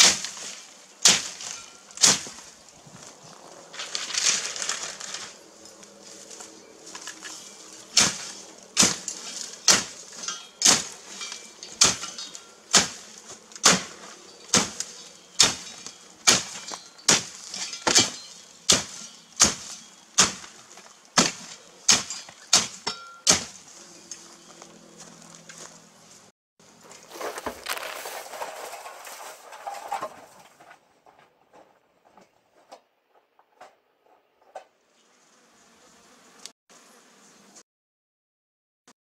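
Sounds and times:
garden tool chopping dry waste: 0.0s - 2.7s, 6.9s - 23.7s, 26.9s - 30.0s.

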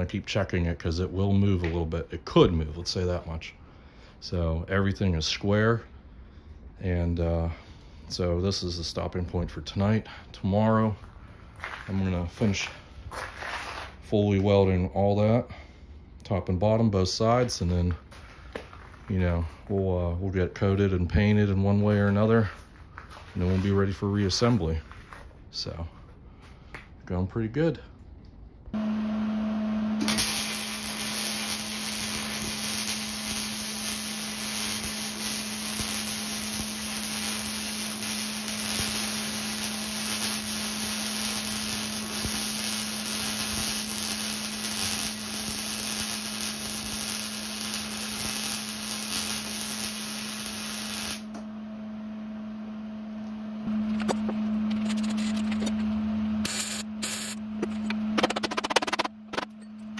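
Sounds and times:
constant low hum: 0.0s - 28.9s, 29.8s - 59.9s
welding arc crackling hiss: 30.0s - 51.3s.

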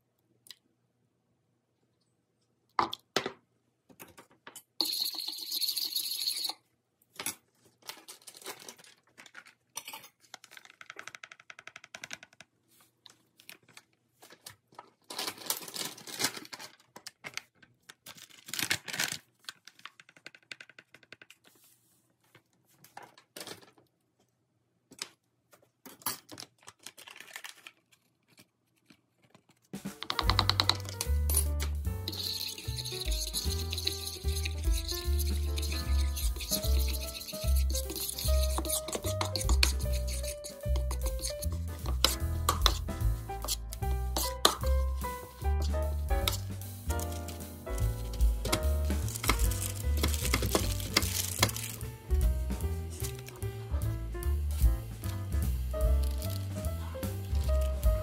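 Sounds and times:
packets rustling: 7.7s - 9.7s, 12.9s - 20.6s, 26.4s - 30.1s, 46.9s - 52.1s.

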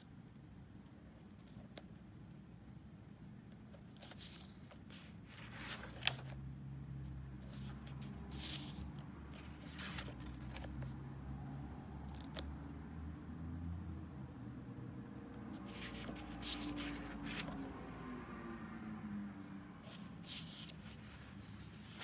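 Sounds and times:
paper pages turning: 3.8s - 6.4s, 7.5s - 11.0s, 15.5s - 18.0s, 19.9s - 22.0s.

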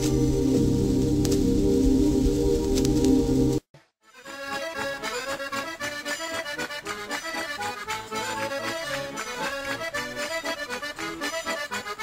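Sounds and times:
lively instrumental music: 0.0s - 12.0s.

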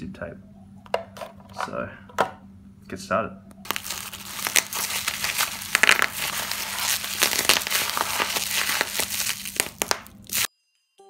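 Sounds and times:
bubble wrap crinkling: 3.7s - 10.5s.

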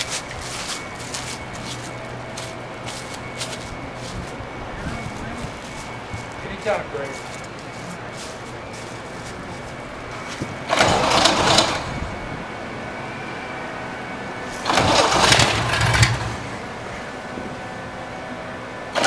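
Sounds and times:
aircraft engine starter cranking: 10.7s - 12.1s, 14.6s - 16.6s.

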